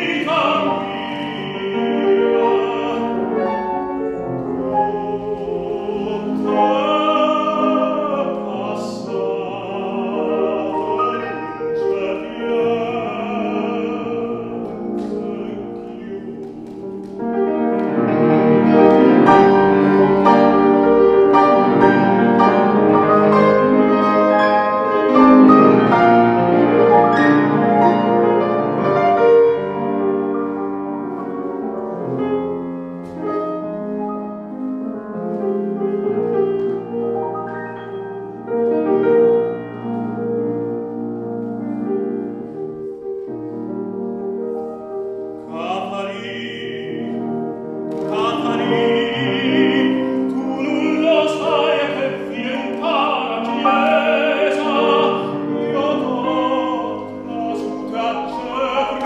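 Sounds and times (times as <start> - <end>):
tenor voice singing: 0.0 - 16.9, 45.5 - 47.3, 48.0 - 59.0
piano accompaniment: 0.0 - 59.0.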